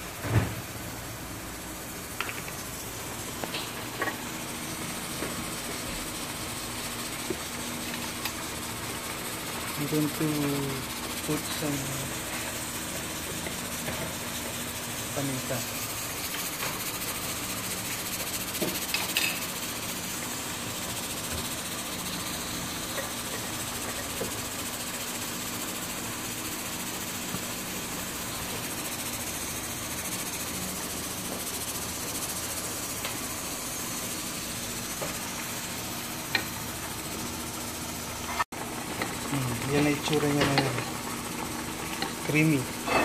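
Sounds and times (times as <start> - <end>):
even hiss: 0.0 - 38.4.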